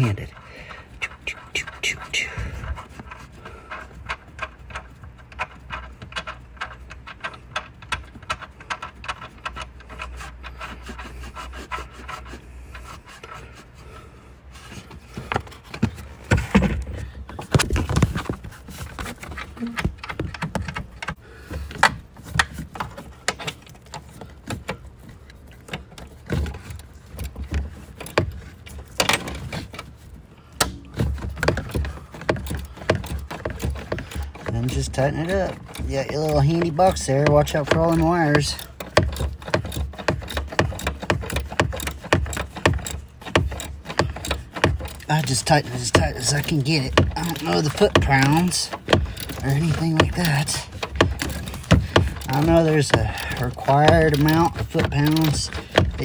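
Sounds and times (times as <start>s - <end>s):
small metallic clicks and rattles: 2.7s - 11.0s, 15.1s - 56.0s
knocks and scrapes on plastic trim: 14.6s - 29.9s, 30.6s - 56.0s.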